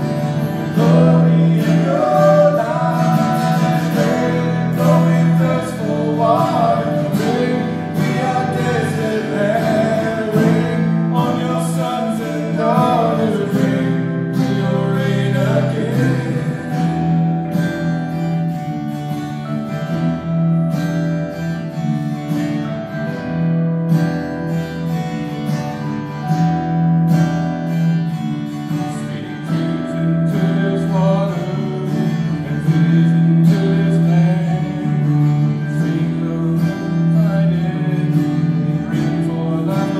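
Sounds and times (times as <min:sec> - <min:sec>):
man singing: 0:00.0 - 0:17.3, 0:28.7 - 0:39.9
strummed acoustic guitars: 0:00.0 - 0:39.9.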